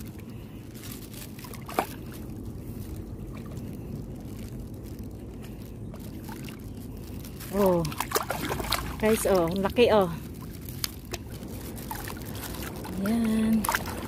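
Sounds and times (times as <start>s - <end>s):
shallow water sloshing and trickling: 0.0s - 14.0s.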